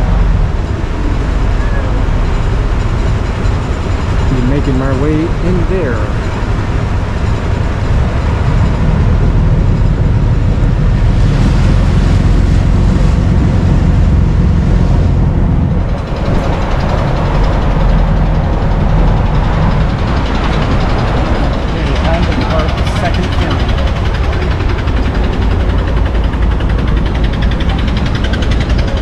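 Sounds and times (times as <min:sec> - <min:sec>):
boat engine rumbling: 0:00.0 - 0:29.0.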